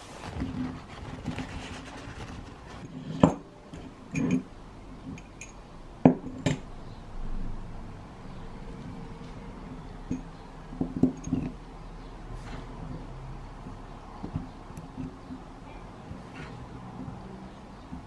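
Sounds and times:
glass jar knocking on wooden board: 10.1 - 11.6.

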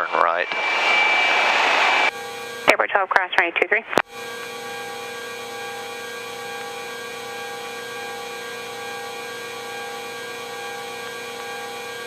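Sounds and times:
helicopter turbine engines and rotor: 0.0 - 7.9.

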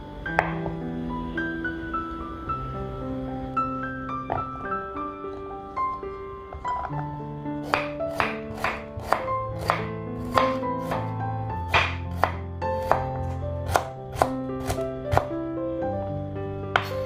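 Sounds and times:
background music: 0.0 - 17.0
knife chopping on wooden board: 7.6 - 11.1, 11.7 - 15.3, 16.8 - 17.0.

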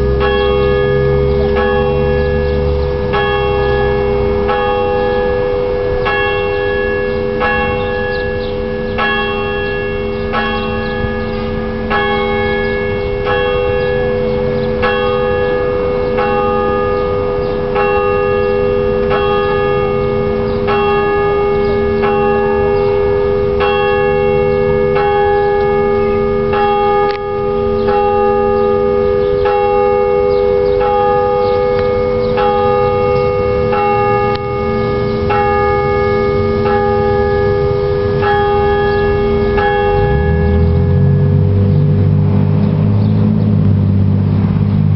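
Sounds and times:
church bells ringing: 0.0 - 44.9.

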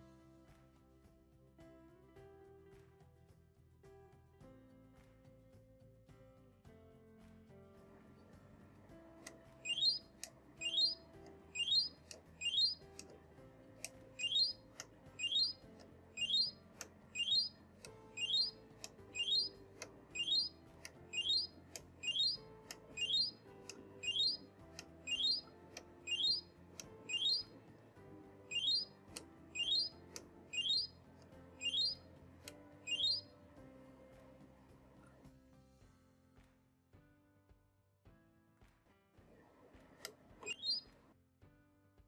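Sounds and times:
short rising electronic chirp: 9.7 - 10.0, 10.6 - 11.0, 11.6 - 12.8, 14.2 - 14.6, 15.2 - 15.6, 16.2 - 16.6, 17.2 - 17.5, 18.2 - 18.5, 19.2 - 19.6, 20.2 - 20.5, 21.1 - 22.4, 23.0 - 23.4, 24.0 - 24.4, 25.1 - 25.4, 26.1 - 26.5, 27.1 - 27.5, 28.5 - 28.9, 29.6 - 29.9, 30.6 - 30.9, 31.6 - 32.0, 32.9 - 33.2, 40.5 - 40.8.

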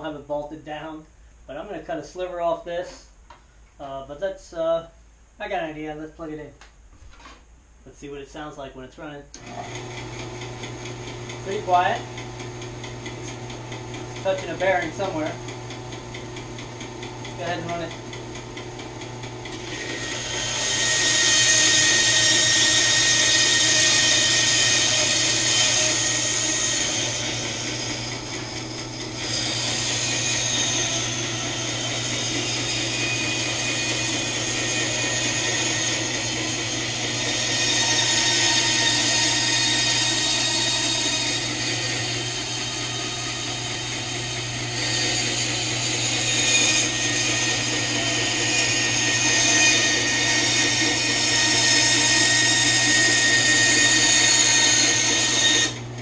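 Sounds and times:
saw blade cutting wood: 9.4 - 55.9
bandsaw motor hum: 9.4 - 56.0.

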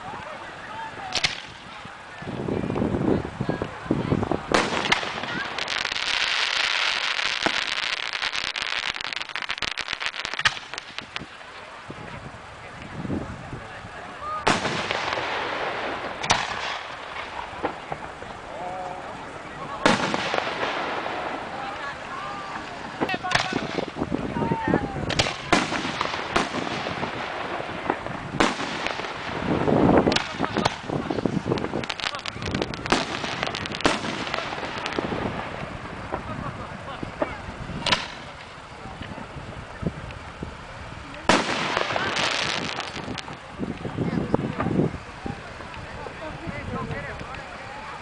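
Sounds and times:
fireworks crackling pops: 0.0 - 48.0
fireworks bang: 4.5 - 11.3, 14.4 - 18.2, 19.6 - 24.2, 25.0 - 39.2, 41.2 - 43.4.

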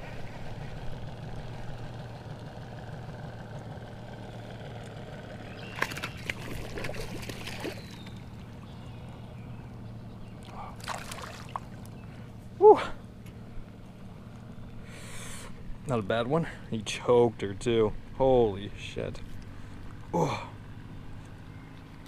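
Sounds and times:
steady low hum: 0.0 - 22.0
fish splashing at water surface: 5.6 - 8.3, 10.5 - 11.8.

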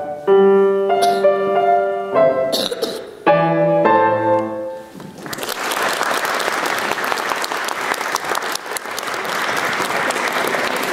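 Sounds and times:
audience applauding: 5.0 - 10.9.

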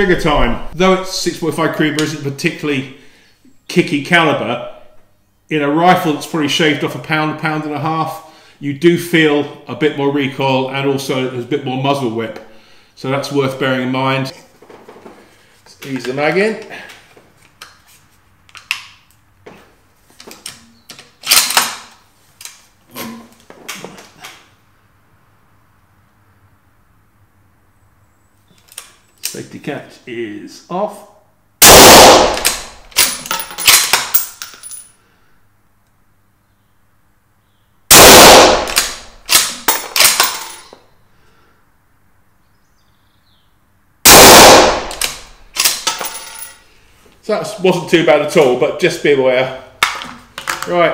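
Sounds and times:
suppressed rifle shots: 31.6 - 32.8, 37.9 - 40.2, 44.1 - 45.8
rifle bolt clattering: 32.1 - 34.7, 38.3 - 40.6, 44.5 - 46.3.

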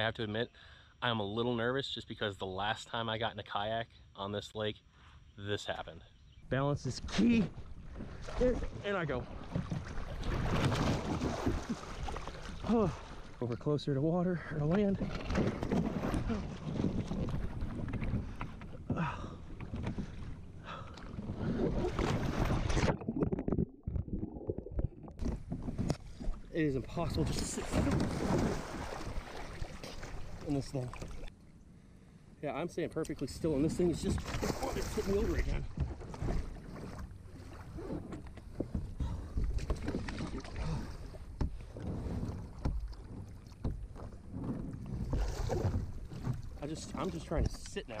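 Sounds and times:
water splashing against kayak hull: 7.0 - 13.7, 14.5 - 31.3, 33.0 - 48.0
knocks and bumps from hull and gear: 7.6 - 13.8, 14.5 - 24.2, 24.8 - 31.2, 33.6 - 48.0
wind rumble on microphone: 15.0 - 19.0, 19.6 - 26.5.

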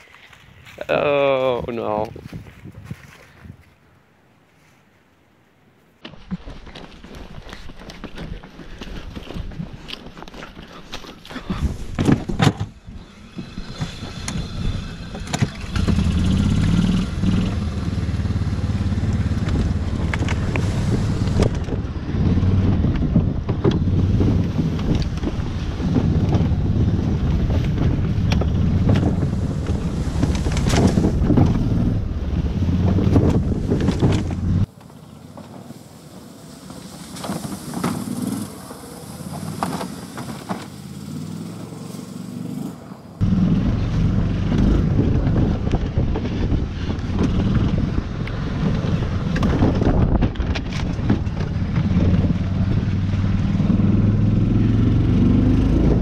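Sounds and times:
golf cart rumbling: 6.1 - 56.0
knocks and rattles: 19.0 - 32.0, 32.6 - 34.6.

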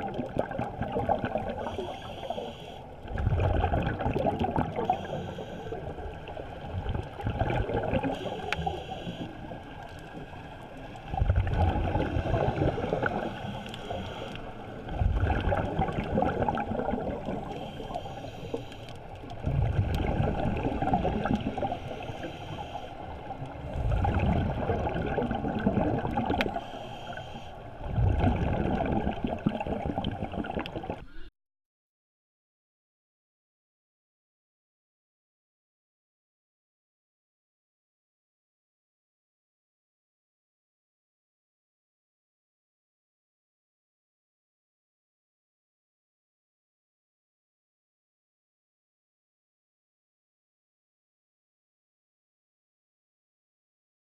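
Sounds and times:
bubbling exhaled air: 0.0 - 6.1, 6.7 - 9.2, 11.1 - 18.7, 19.4 - 22.7, 23.5 - 31.3
regulator inhale hiss: 1.6 - 3.0, 4.8 - 6.0, 8.0 - 9.6, 13.3 - 14.7, 17.4 - 19.1, 21.5 - 23.2, 26.5 - 27.7.

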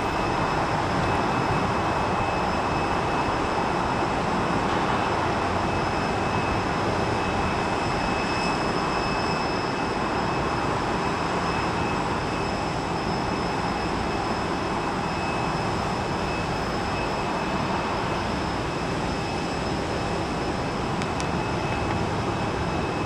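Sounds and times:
jet engines running: 0.0 - 23.0.

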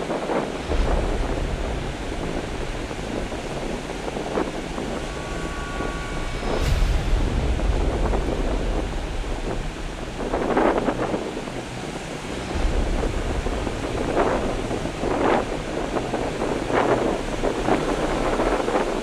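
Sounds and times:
ocean surf breaking on beach: 0.0 - 19.0
wind buffeting microphone: 0.0 - 19.0.

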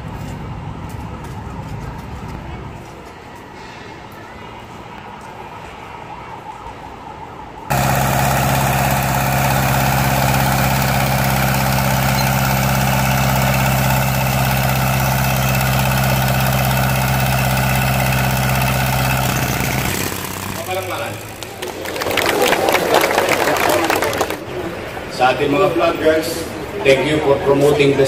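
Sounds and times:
street background: 0.0 - 28.0
air compressor engine running: 7.7 - 21.6.

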